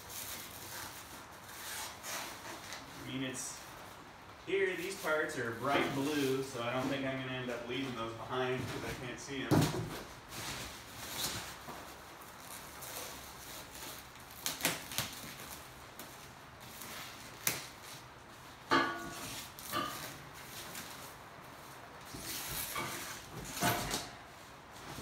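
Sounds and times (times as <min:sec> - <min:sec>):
packing wrap rustling: 0:10.1 - 0:18.6.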